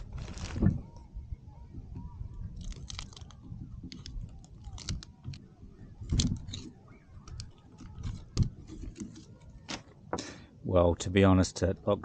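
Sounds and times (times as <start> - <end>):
small clicks and rustles: 2.6 - 9.9.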